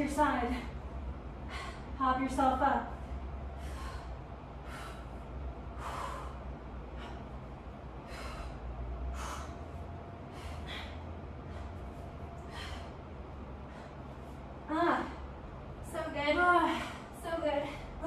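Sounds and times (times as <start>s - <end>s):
person breathing hard: 1.4s - 2.0s, 3.1s - 15.4s.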